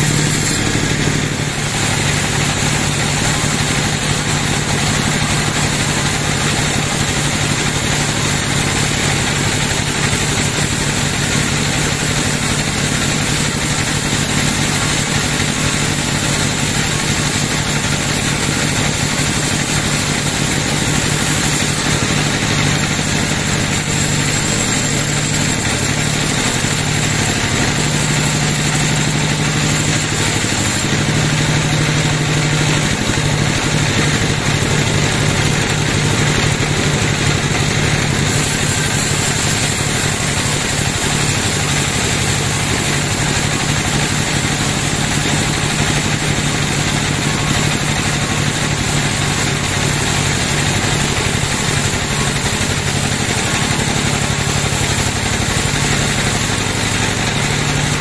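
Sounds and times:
band saw cutting log: 0.0s - 58.0s
high blade whine: 0.0s - 58.0s.

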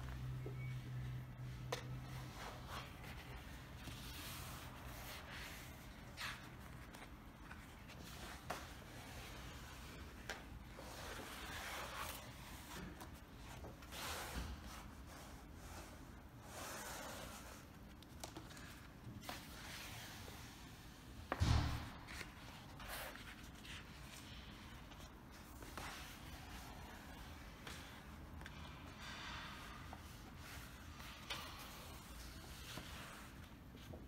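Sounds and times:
thump: 21.3s - 22.1s.

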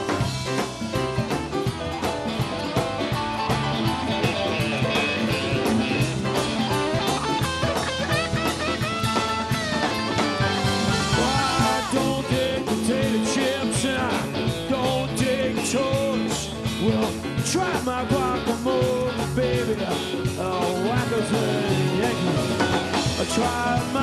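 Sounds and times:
drum kit: 0.0s - 24.0s
electric guitar lead lines: 0.0s - 24.0s
keyboards: 0.0s - 24.0s.

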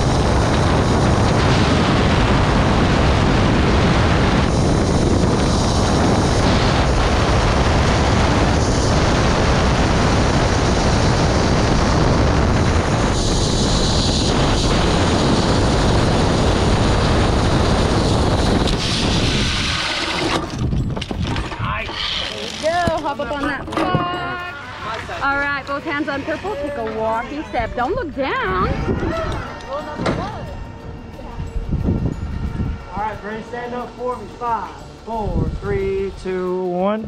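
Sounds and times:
wind rushing over microphone: 0.0s - 22.2s, 27.3s - 36.5s
pulleys running along cable: 4.4s - 30.6s.

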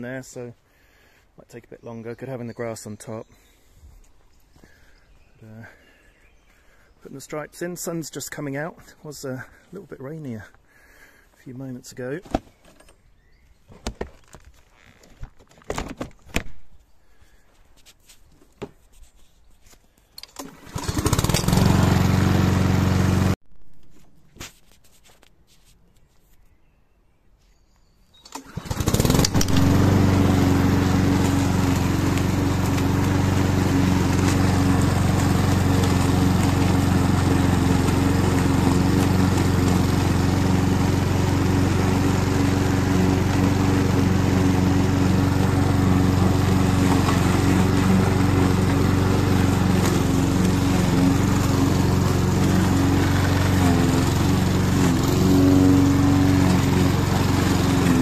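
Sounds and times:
lawn mower engine running: 20.2s - 23.4s, 28.2s - 58.0s.

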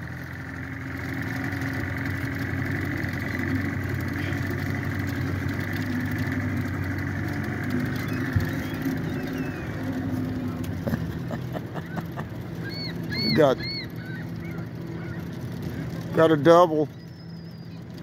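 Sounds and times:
engine running at low speed: 0.0s - 18.0s.

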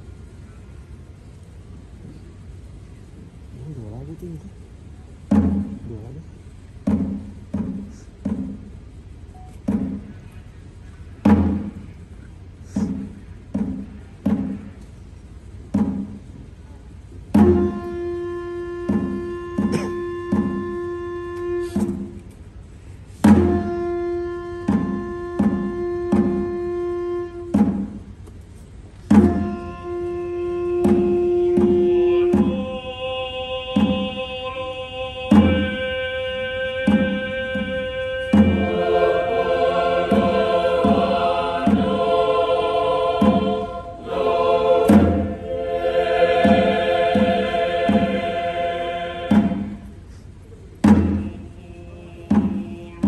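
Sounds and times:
choir singing chant-like notes: 17.4s - 22.2s, 23.3s - 27.5s, 29.2s - 50.0s, 50.8s - 53.0s
repeating drum pattern: 36.9s - 49.9s.

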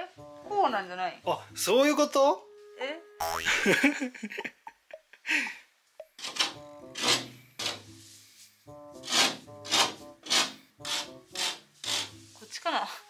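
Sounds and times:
background music: 0.0s - 4.4s, 6.0s - 13.0s
rasp scraping plasterboard edge: 6.2s - 7.8s, 9.0s - 12.2s.

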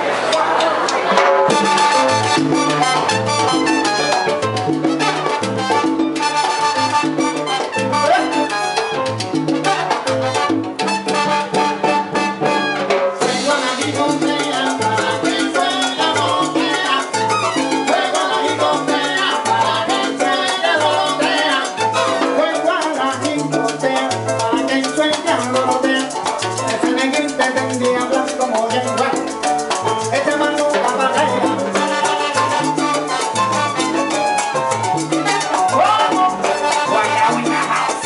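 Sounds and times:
salsa band playing: 0.0s - 38.0s
bass line: 0.6s - 38.0s
dense percussion: 1.1s - 6.2s
person singing into microphone: 13.2s - 29.2s, 30.1s - 32.4s, 35.6s - 38.0s.

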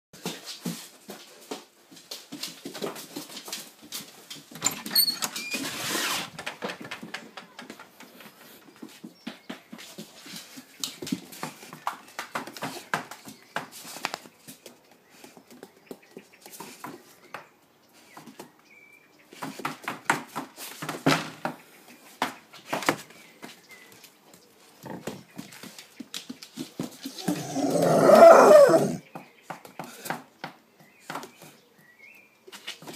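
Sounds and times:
dog rough vocal sound: 27.1s - 29.0s.

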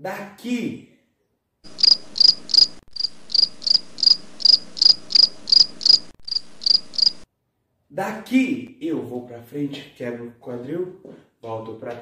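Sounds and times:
cricket chirping: 1.7s - 7.2s.

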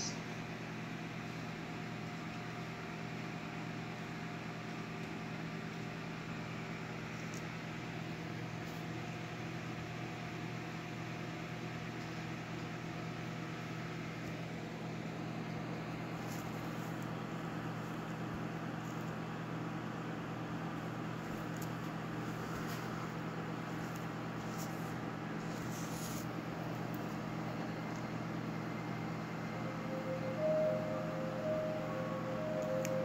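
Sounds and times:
low mechanical hum: 0.0s - 33.0s.

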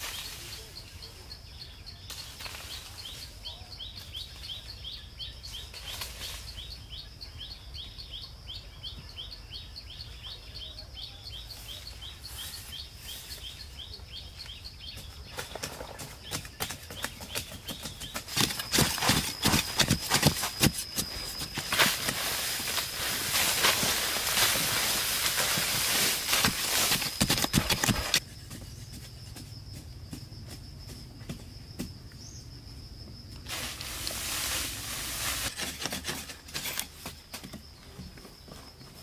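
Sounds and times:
blade digging in dry soil: 15.4s - 28.9s, 33.5s - 37.2s.

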